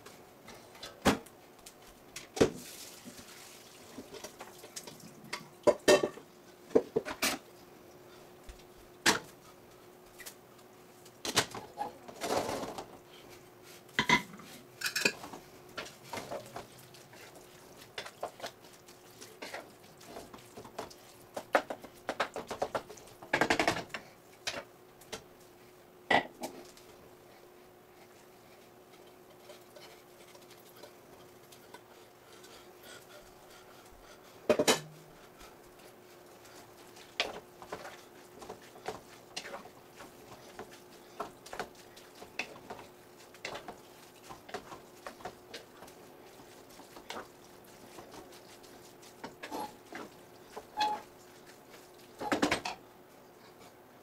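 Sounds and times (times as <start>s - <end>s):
wooden spoon stirring in a pan: 1.7s - 54.0s
cookware clattering: 5.6s - 6.2s, 14.0s - 15.2s.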